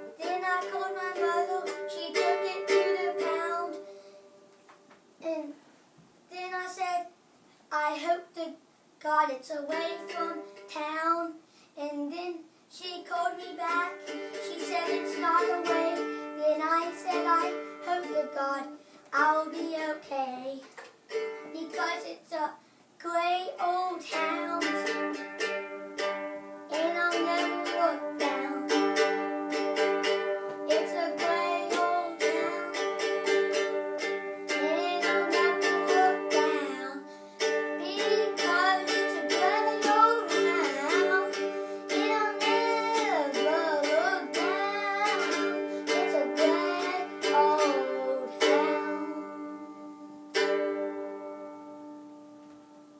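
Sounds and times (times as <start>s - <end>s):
person singing: 0.0s - 4.0s, 9.6s - 11.4s, 12.1s - 22.5s, 23.1s - 25.2s, 26.7s - 50.0s
strummed ukulele chords: 0.0s - 4.4s, 9.7s - 11.1s, 13.1s - 20.0s, 23.7s - 52.9s.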